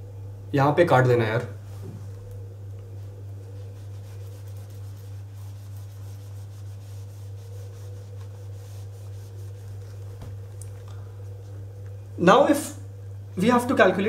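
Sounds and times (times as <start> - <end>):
steady low hum: 0.0 - 14.0
eraser wiping whiteboard: 3.4 - 10.4.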